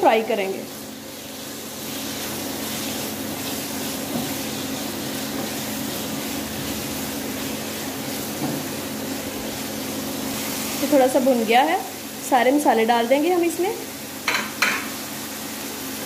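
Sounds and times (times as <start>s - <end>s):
chicken sizzling in hot oil: 0.0s - 16.0s.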